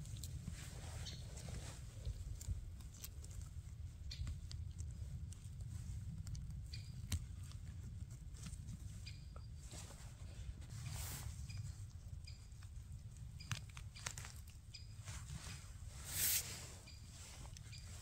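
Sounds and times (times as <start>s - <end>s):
twigs snapping: 13.3s - 14.9s
rustling in leaf litter: 13.4s - 18.0s.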